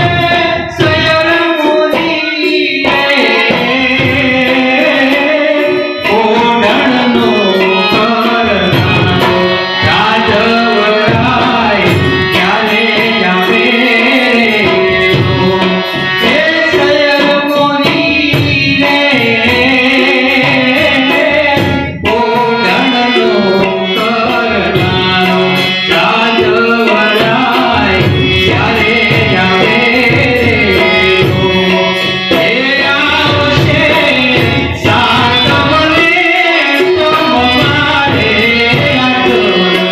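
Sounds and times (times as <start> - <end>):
harmonium: 0.0 - 39.9
man singing into a microphone: 0.0 - 39.9
tabla: 0.0 - 39.9.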